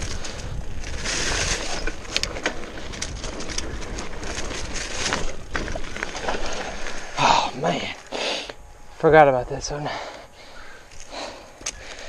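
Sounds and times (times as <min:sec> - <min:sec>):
bike clicking and rattling: 0:00.0 - 0:07.2
wind buffeting microphone: 0:00.0 - 0:07.2
tyres crunching over leaves and dirt: 0:00.0 - 0:08.2.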